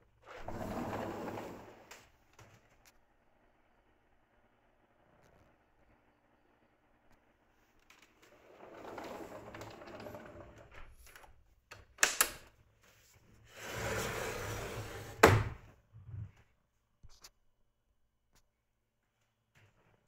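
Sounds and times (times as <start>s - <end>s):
door sliding and scraping: 0.3s - 2.1s, 8.2s - 11.1s, 13.4s - 16.3s.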